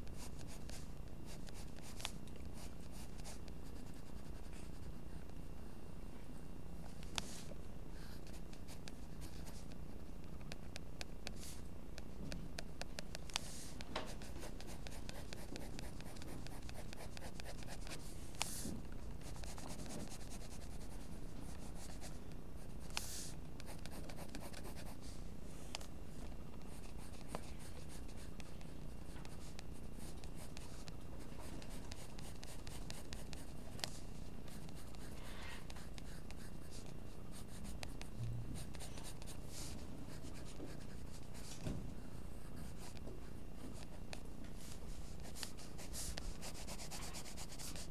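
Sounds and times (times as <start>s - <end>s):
pencil scratching on paper: 13.2s - 18.6s, 19.2s - 22.1s, 22.9s - 25.0s, 29.2s - 41.6s, 44.6s - 47.9s.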